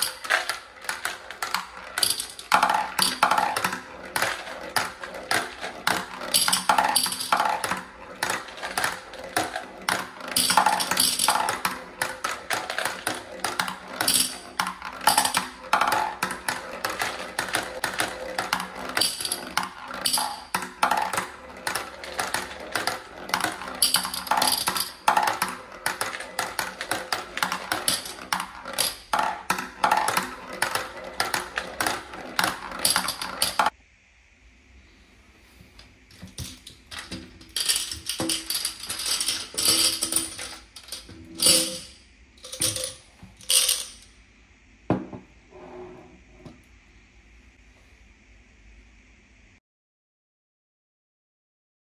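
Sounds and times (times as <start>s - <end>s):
marbles clinking into glass jar: 0.0s - 33.7s, 36.3s - 44.1s
marbles rolling and clacking on ramps: 0.0s - 33.8s, 36.1s - 44.1s.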